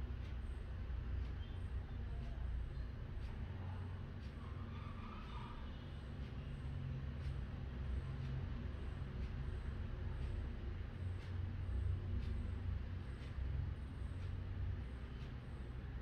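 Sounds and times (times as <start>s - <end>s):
faint regular ticks: 0.0s - 16.0s.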